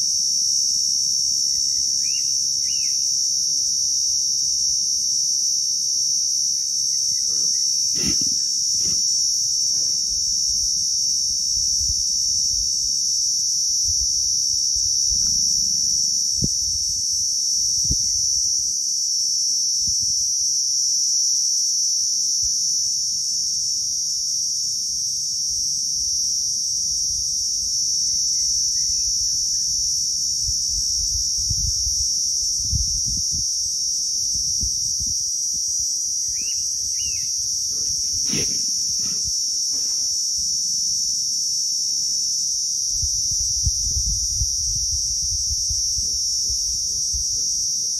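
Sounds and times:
insect chorus droning: 0.0s - 47.9s
faint chirps: 1.4s - 3.1s, 6.5s - 9.0s, 36.2s - 40.2s.

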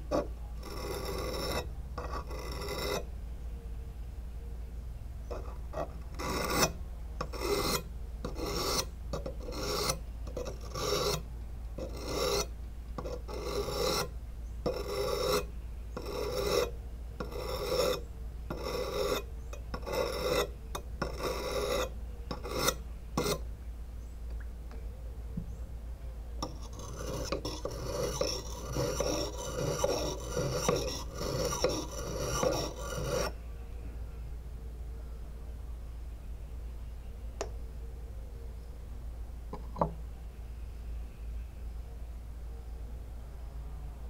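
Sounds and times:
whetstone grinding on blade: 0.1s - 3.0s, 6.2s - 11.2s, 11.8s - 14.1s, 14.7s - 19.2s, 19.8s - 23.4s, 26.4s - 33.3s.

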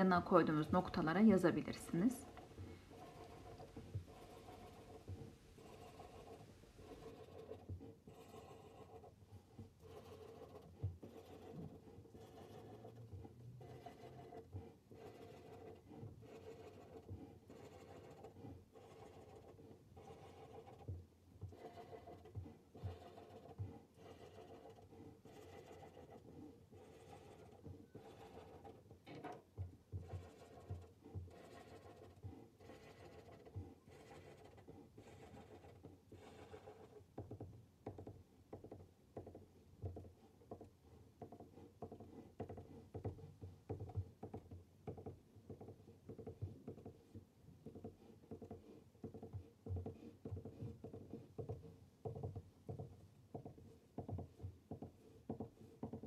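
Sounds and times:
felt pen tapping on paper: 37.2s - 56.0s.

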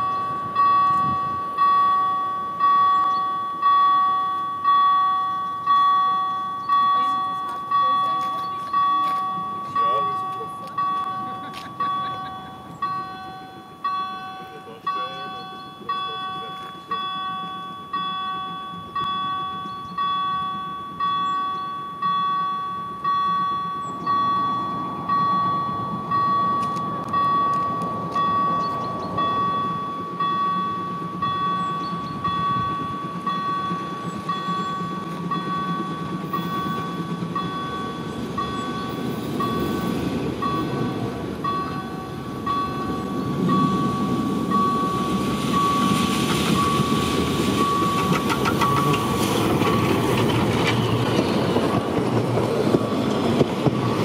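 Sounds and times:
level-crossing warning bell: 0.0s - 54.0s
steam locomotive rumble: 0.0s - 54.0s.

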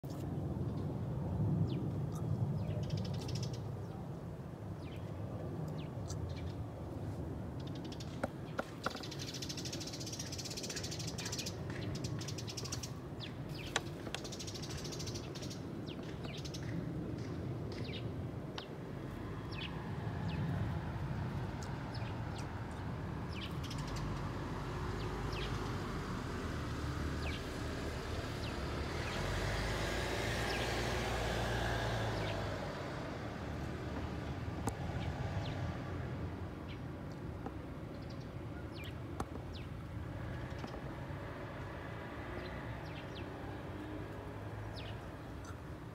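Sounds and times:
birds chirping: 7.6s - 20.6s, 21.3s - 25.8s, 26.6s - 35.6s, 44.6s - 45.7s.

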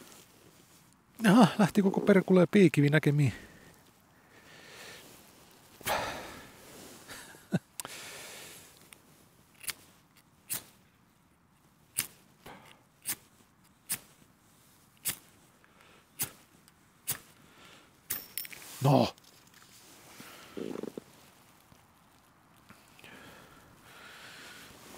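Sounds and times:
steel striker scraping flint: 8.7s - 10.9s, 11.9s - 15.5s, 16.1s - 17.4s, 18.0s - 19.9s.

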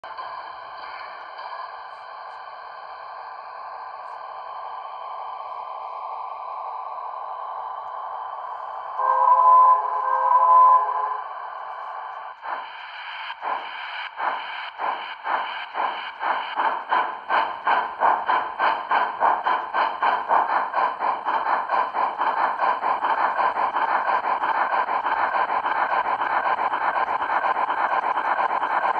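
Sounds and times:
steam locomotive exhaust chuffs: 0.1s - 28.9s
steam whistle: 9.0s - 11.3s
steam hiss: 12.0s - 28.9s.

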